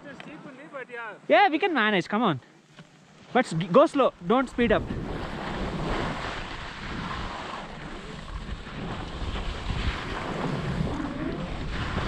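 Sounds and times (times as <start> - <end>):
skis scraping over snow: 3.2 - 12.0
wind rushing over microphone: 4.1 - 12.0.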